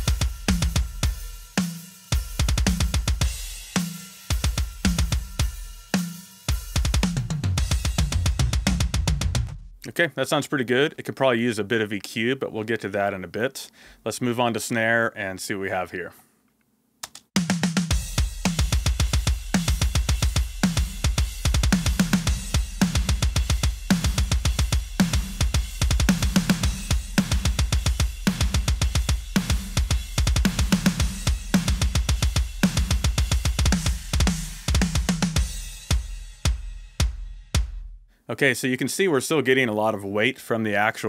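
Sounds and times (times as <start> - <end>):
fast kick drum: 0.0 - 1.4, 2.1 - 5.7, 6.5 - 9.7, 17.4 - 38.0
cymbals: 0.0 - 9.1, 17.8 - 37.8
snare drum hits: 17.4 - 37.8.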